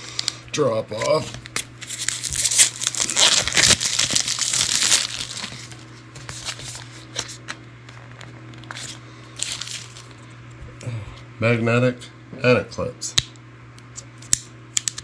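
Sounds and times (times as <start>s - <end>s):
cardboard packaging crinkling: 1.0s - 7.5s, 8.2s - 10.2s.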